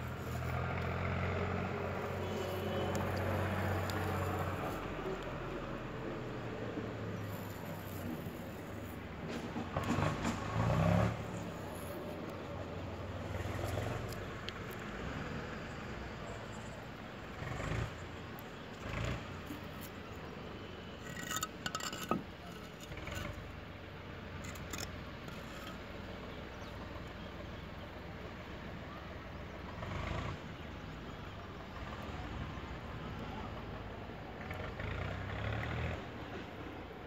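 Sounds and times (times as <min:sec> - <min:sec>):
steady background noise: 0:00.0 - 0:37.0
scrapes and taps of handling: 0:21.0 - 0:23.3.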